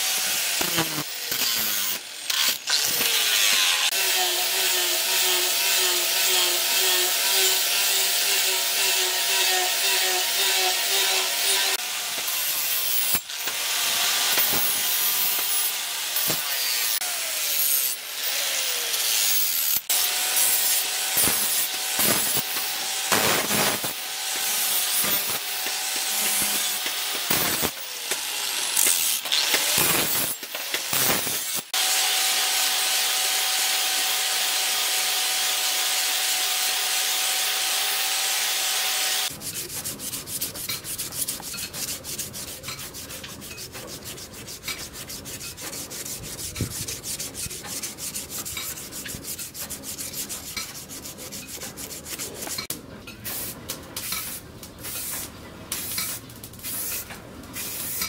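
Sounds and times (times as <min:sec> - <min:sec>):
angle grinder grinding steel: 0:00.0 - 0:52.7
sandpaper rubbing wood: 0:00.6 - 0:01.8, 0:39.3 - 0:52.7.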